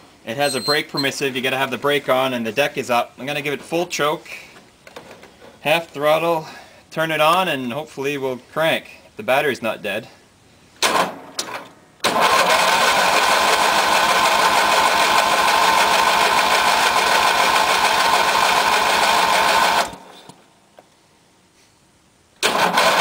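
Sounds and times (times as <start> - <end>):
electric starter cranking engine: 12.0 - 20.1, 22.4 - 23.0.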